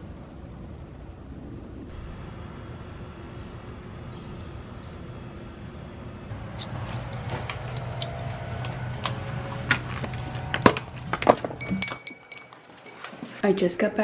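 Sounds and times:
steady low rumble: 0:00.0 - 0:11.6
sharp clicks and metallic clinks: 0:11.5 - 0:13.2.

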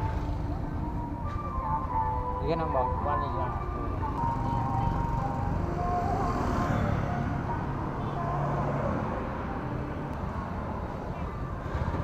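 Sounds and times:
scooters and cars passing: 0:02.6 - 0:12.0.

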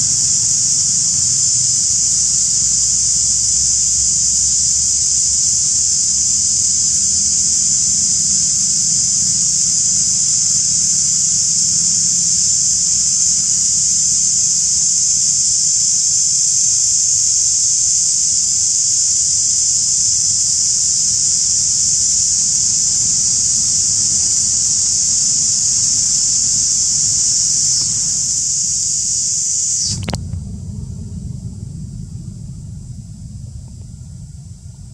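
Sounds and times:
cicadas droning: 0:00.0 - 0:34.9
low rumble: 0:25.8 - 0:34.9.

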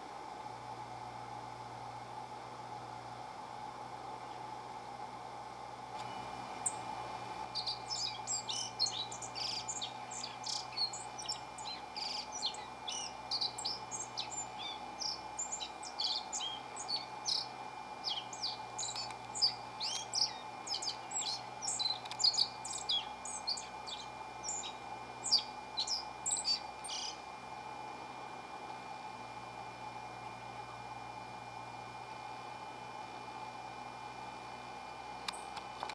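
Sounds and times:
bird twittering song: 0:07.5 - 0:27.2.

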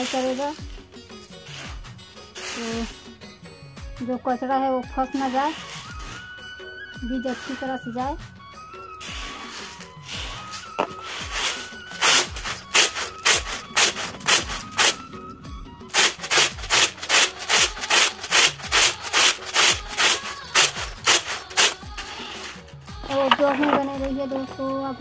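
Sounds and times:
grain swishing in winnowing basket: 0:00.0 - 0:03.2, 0:05.0 - 0:06.4, 0:07.1 - 0:08.2, 0:08.8 - 0:22.8.

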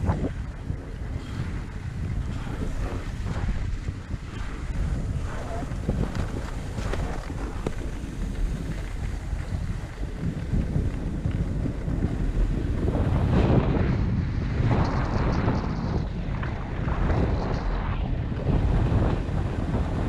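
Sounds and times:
wind rushing over microphone: 0:00.0 - 0:20.0
skis hissing and scraping on snow: 0:00.1 - 0:13.3.

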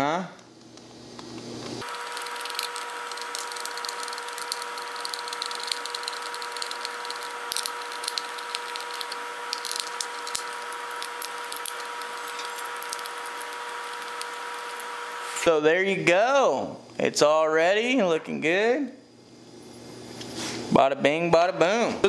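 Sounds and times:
steady hum and hiss: 0:00.0 - 0:22.0.

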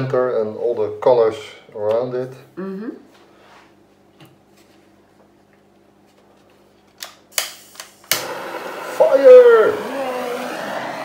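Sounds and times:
butane torch igniter clicking: 0:07.0 - 0:11.0
torch flame hissing: 0:07.4 - 0:11.0.

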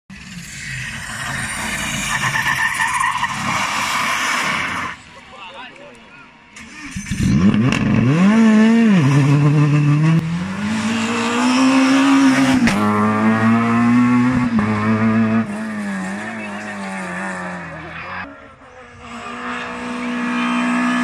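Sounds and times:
rally car engines revving: 0:06.2 - 0:21.0.

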